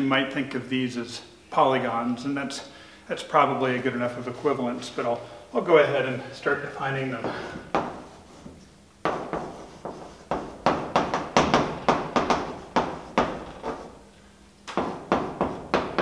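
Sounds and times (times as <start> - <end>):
chalk tapping and scraping on blackboard: 7.7 - 14.0, 14.7 - 16.0.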